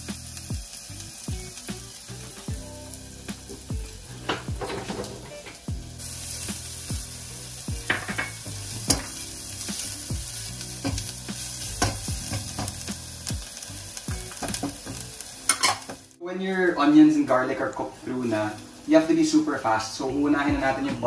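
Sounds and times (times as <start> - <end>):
onion and garlic sizzling in oil: 0.0 - 21.0
spatula scraping and tapping pan: 11.8 - 12.9.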